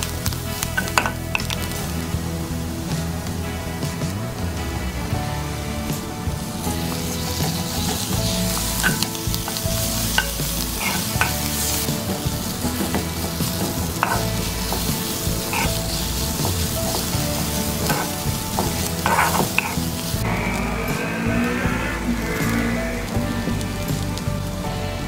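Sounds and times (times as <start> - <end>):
onions sizzling in frying pan: 0.0 - 3.6, 5.3 - 25.0
wooden spatula scraping pan: 6.0 - 24.2.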